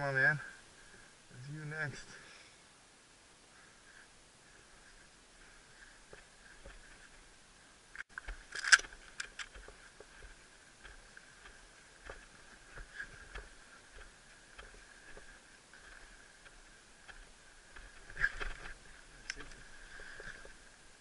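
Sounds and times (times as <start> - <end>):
clicks from brush and gear: 7.9 - 20.6
footsteps crunching on sandy dirt: 8.1 - 20.7.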